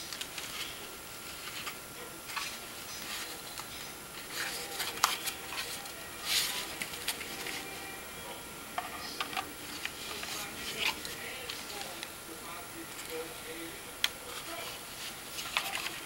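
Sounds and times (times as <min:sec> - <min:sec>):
packaging rustling: 0:00.0 - 0:07.8, 0:09.0 - 0:12.1, 0:14.3 - 0:16.0.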